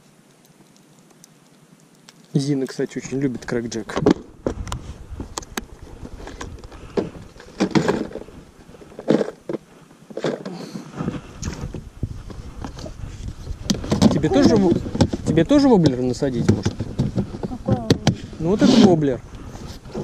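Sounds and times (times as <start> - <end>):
clothing rubbing on microphone: 16.7 - 20.0.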